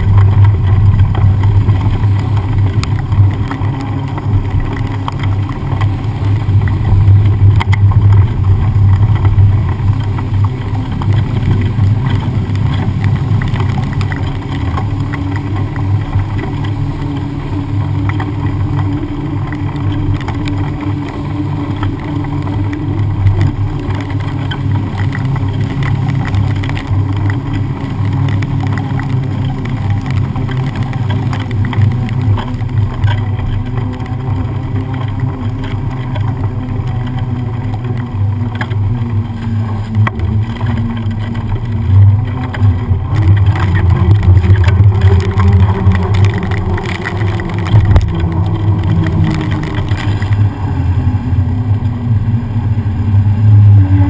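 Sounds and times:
bicycle tyres rolling through water: 0:00.0 - 0:54.0
wind rumble on camera: 0:00.0 - 0:54.0.

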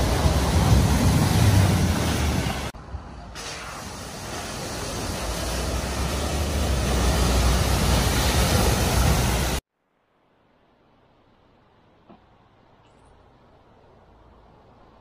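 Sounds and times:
truck splashing through water: 0:03.5 - 0:09.6.

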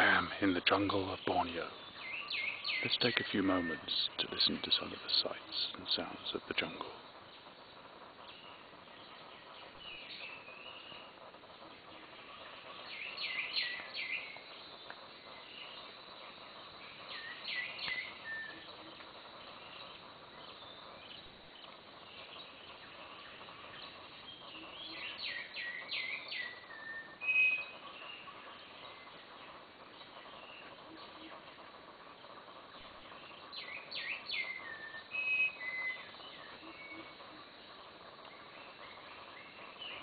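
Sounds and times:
birds chirping and whistling: 0:00.0 - 0:40.0
forest background noise: 0:00.0 - 0:40.0.

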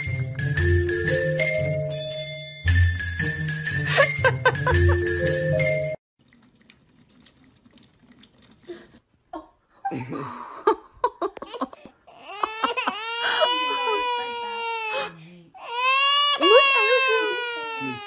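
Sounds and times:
marimba music over bass line: 0:00.4 - 0:06.0
cats lapping water: 0:06.2 - 0:09.0
thin stream from kitchen tap: 0:06.2 - 0:09.0.

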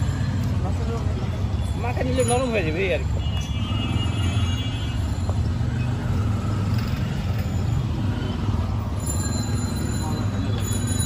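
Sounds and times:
low rumble of street traffic: 0:00.0 - 0:11.0
high steady ringing tone: 0:08.8 - 0:11.0.

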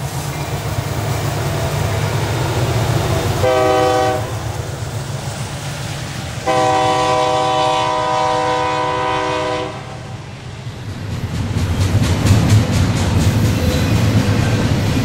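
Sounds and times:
freight train rumbling past: 0:00.0 - 0:15.0
locomotive air horn chord: 0:03.4 - 0:04.4, 0:06.4 - 0:10.2.

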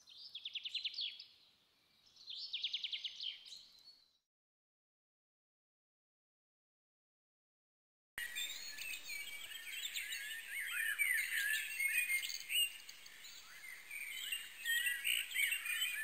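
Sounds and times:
birds chirping: 0:08.2 - 0:16.0.

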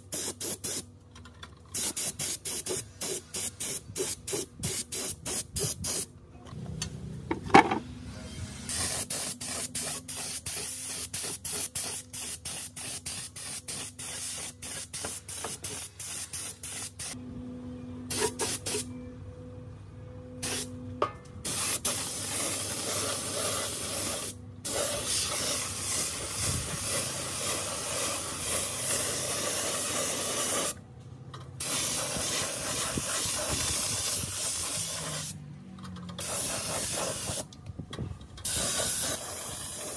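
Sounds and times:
spray gun hissing: 0:08.7 - 0:17.2, 0:21.5 - 0:30.8, 0:31.6 - 0:35.3, 0:36.2 - 0:37.4, 0:38.4 - 0:39.9.

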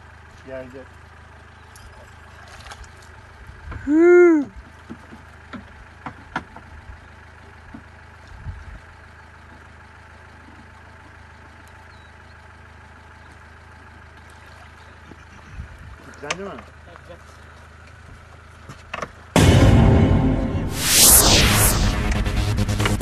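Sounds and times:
vehicle engine idling: 0:00.0 - 0:19.4
person shouting: 0:03.9 - 0:04.5.

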